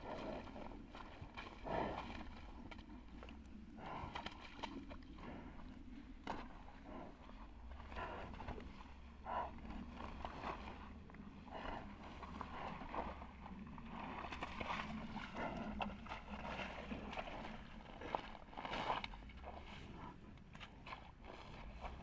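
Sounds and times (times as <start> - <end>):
low rumble: 0.0 - 22.0
grass and mud tearing and squelching: 9.7 - 22.0.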